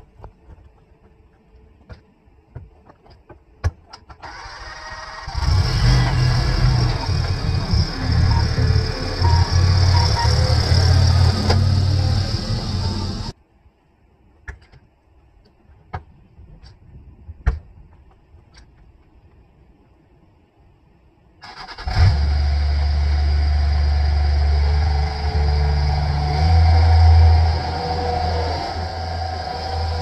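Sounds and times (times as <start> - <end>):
diesel mower engine running: 4.3 - 13.3, 21.9 - 30.0.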